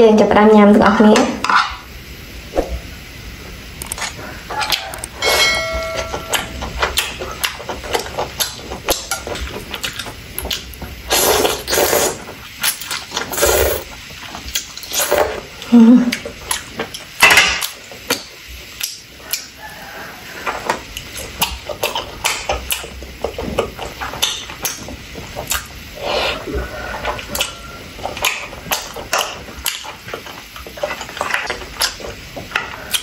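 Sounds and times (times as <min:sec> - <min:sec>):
chewing with wet mouth clicks: 0:03.8 - 0:05.2, 0:06.3 - 0:10.9, 0:16.1 - 0:19.6, 0:20.4 - 0:33.0
noodles slurped: 0:07.3 - 0:15.5.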